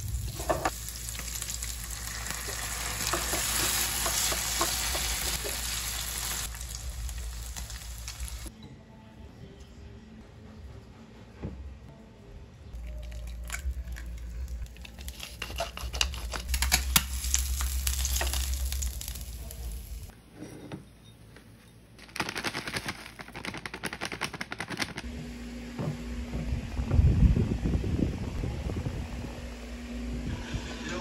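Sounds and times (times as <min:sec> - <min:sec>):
egg sizzling in a pan: 0:00.0 - 0:08.5, 0:16.2 - 0:20.1.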